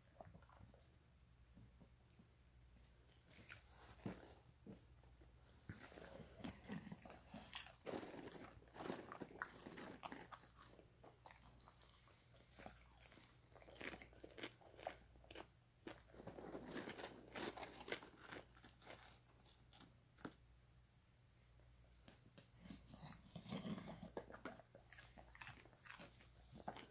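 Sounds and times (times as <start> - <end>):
dog crunching popcorn: 5.6 - 20.4, 22.6 - 26.9.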